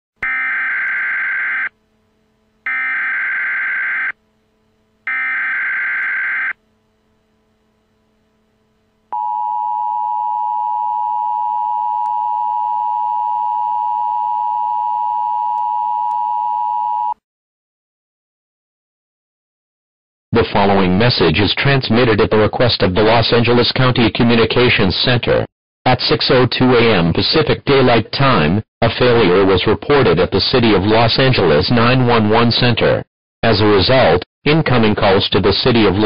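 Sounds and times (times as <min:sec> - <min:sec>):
two-tone alarm: 0:00.2 - 0:01.8, 0:02.6 - 0:04.2, 0:05.0 - 0:06.6.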